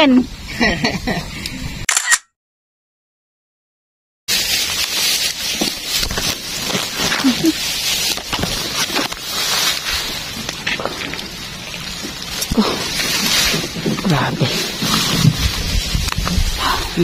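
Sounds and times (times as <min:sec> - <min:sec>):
grass and leaves rustling: 0:04.3 - 0:17.0.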